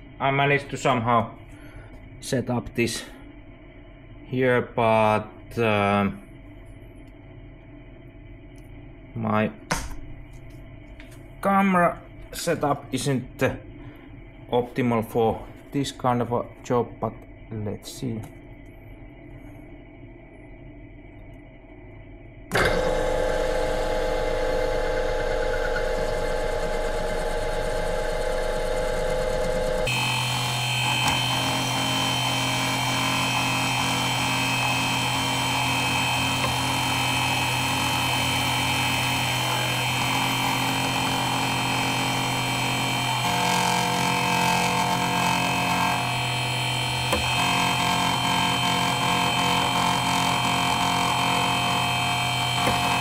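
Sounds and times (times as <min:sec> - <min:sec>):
milling machine running: 0:22.5 - 0:53.0.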